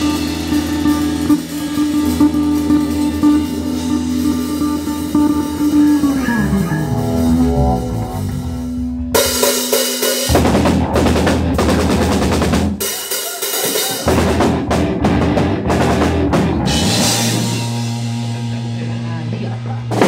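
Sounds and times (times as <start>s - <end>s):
held low bass note: 0.0s - 9.3s
live funk rock band: 0.0s - 20.0s.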